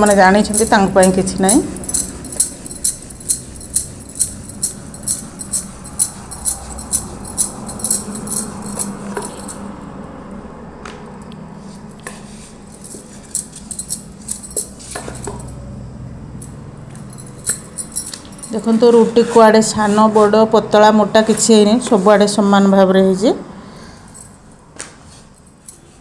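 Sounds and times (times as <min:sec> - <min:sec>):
bangles clinking: 0:00.0 - 0:10.0, 0:11.6 - 0:19.6, 0:24.0 - 0:24.6, 0:25.2 - 0:26.0
rolling pin rolling dough on board: 0:18.6 - 0:22.4.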